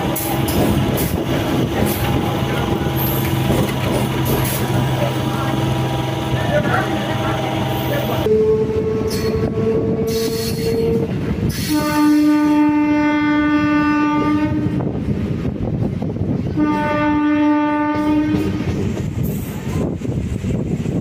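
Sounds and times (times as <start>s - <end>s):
train running rumble: 0.0s - 21.0s
train horn blasts: 8.2s - 14.8s, 16.5s - 18.8s.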